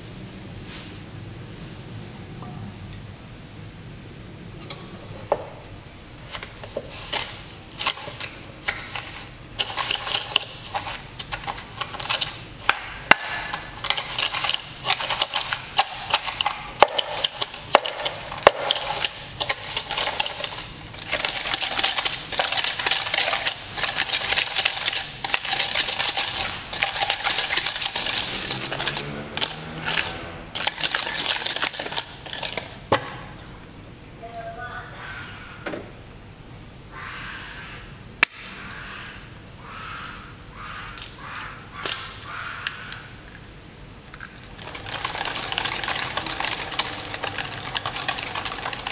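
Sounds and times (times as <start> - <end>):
whisk clicking in metal bowl: 9.6 - 32.6, 44.6 - 48.9.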